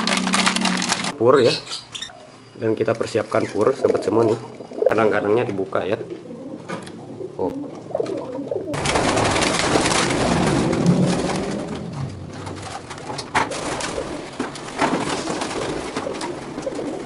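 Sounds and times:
wings flapping: 0:00.0 - 0:01.2, 0:07.9 - 0:17.0
pigeons cooing: 0:00.0 - 0:17.0.

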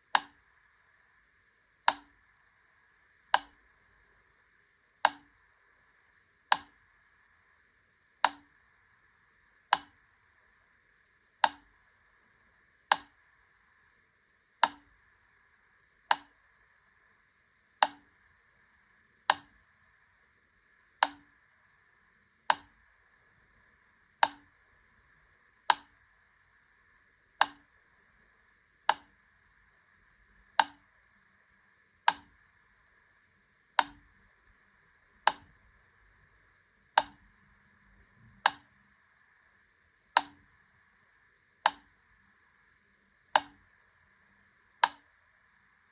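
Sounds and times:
metronome ticking: 0:05.0 - 0:05.4, 0:08.2 - 0:08.5, 0:21.0 - 0:21.3, 0:30.6 - 0:30.9, 0:33.8 - 0:34.1, 0:37.0 - 0:37.3, 0:40.1 - 0:40.5.

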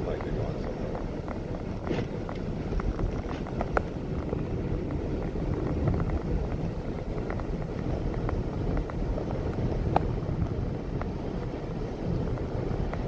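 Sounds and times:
car engine: 0:00.0 - 0:13.0.

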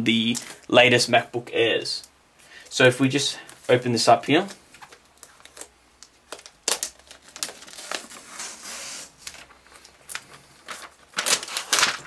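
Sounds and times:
plastic crinkling and crackling: 0:04.4 - 0:12.0
plastic film peeling: 0:04.7 - 0:12.0.

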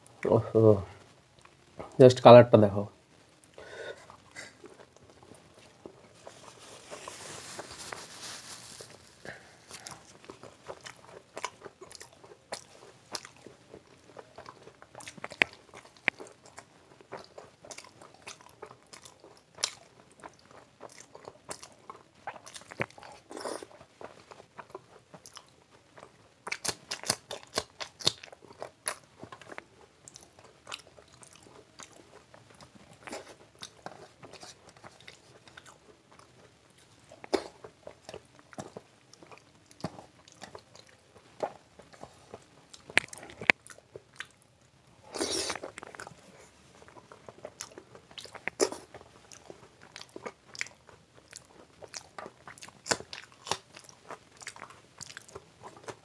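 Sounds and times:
person chewing crunchy food: 0:03.5 - 0:56.0.

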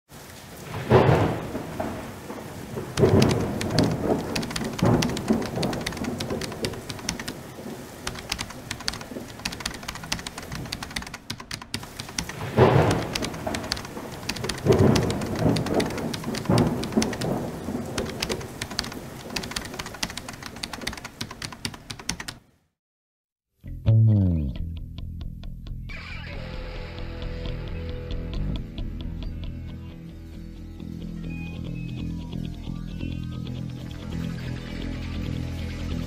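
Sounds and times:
steady rain: 0:00.1 - 0:22.4
thunder rolling: 0:00.6 - 0:21.7.

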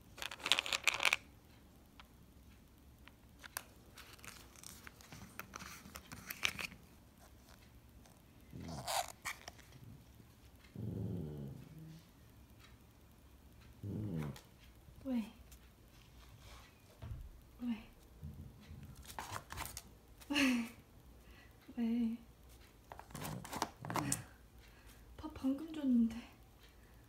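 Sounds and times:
plastic bottles clicking and rattling: 0:00.2 - 0:01.2
small dog growling: 0:10.7 - 0:12.0, 0:13.8 - 0:14.5.

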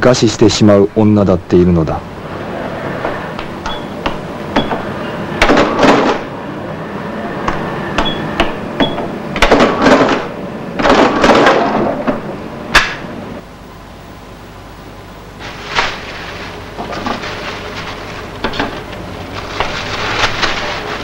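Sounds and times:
cash register key beeps: 0:03.6 - 0:04.0.

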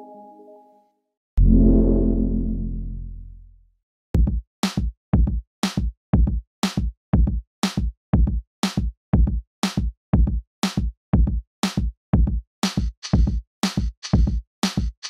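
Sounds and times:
drum machine clap or snare: 0:04.2 - 0:04.9, 0:05.6 - 0:05.9, 0:06.6 - 0:06.9, 0:07.6 - 0:07.9, 0:08.6 - 0:08.9, 0:09.6 - 0:09.9, 0:10.6 - 0:10.9, 0:11.6 - 0:11.9, 0:12.6 - 0:15.0
drum machine kick drum: 0:04.2 - 0:15.0.

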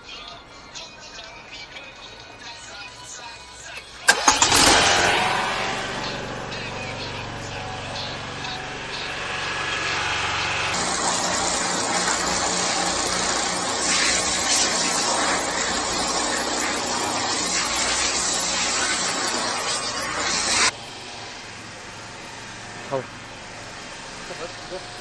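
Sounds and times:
engine and pump humming: 0:03.7 - 0:25.0
pulsing water jet rushing: 0:10.2 - 0:20.7.

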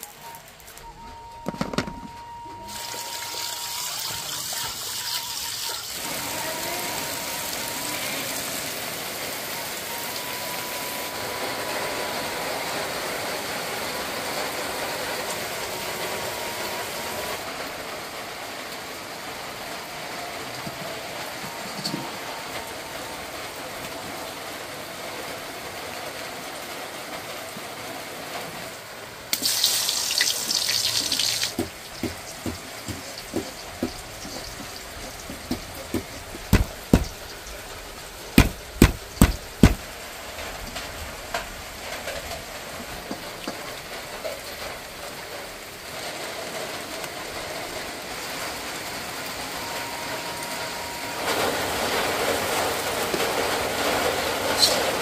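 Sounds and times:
heavy rain hiss: 0:02.6 - 0:55.0
knife chopping on wooden board: 0:35.5 - 0:37.2, 0:38.4 - 0:39.8.

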